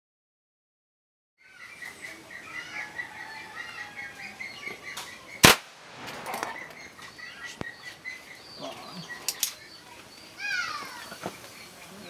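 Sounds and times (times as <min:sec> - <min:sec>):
birds chirping: 0:01.4 - 0:12.0
gunshot crack: 0:05.4 - 0:06.9.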